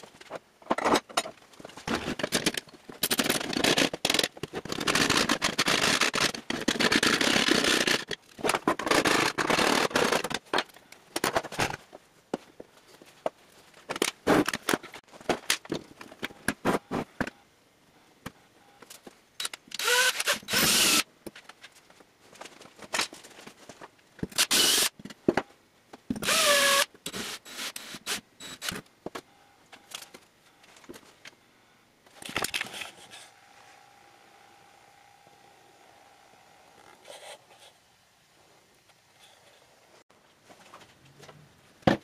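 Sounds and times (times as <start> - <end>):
handheld power tool whirring: 19.4 - 21.1, 24.3 - 24.9, 26.2 - 28.8.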